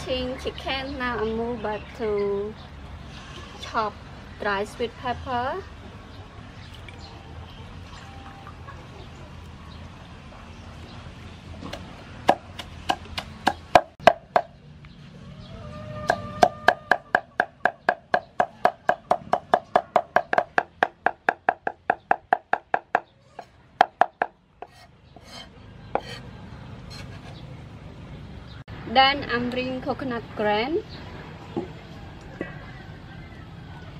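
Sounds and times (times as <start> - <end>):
cleaver chopping on wooden block: 11.7 - 14.5, 23.8 - 26.2.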